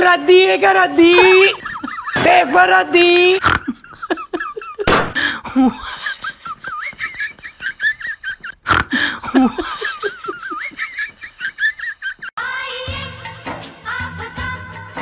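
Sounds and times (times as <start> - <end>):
high-pitched laughter: 1.0 - 2.4, 5.5 - 12.4.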